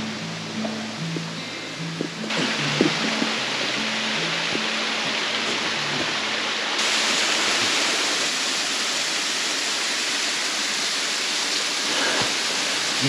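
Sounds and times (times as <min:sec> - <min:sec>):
faint background music: 0:00.0 - 0:06.8
rushing water of mountain stream: 0:00.0 - 0:13.0.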